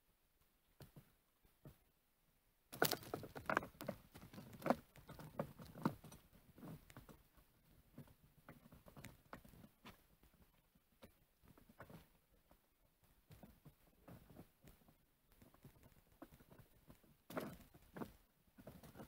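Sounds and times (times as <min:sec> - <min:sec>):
hands rustling twigs and moss: 0:02.8 - 0:05.1.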